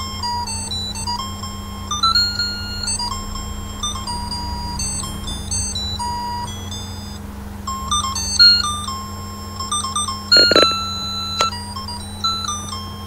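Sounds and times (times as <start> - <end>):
steady low hum: 0.0 - 13.0
tinny electronic beeping melody: 1.7 - 12.8.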